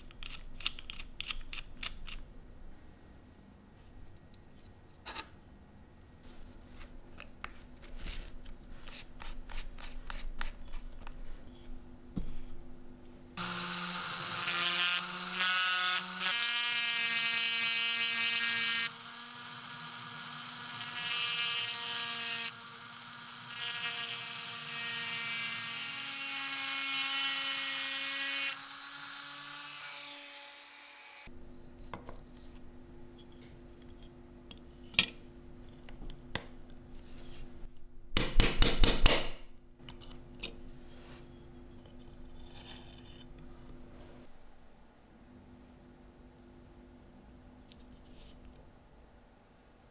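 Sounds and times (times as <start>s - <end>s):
rotary tool grinding whine: 13.4s - 16.9s, 18.3s - 24.7s.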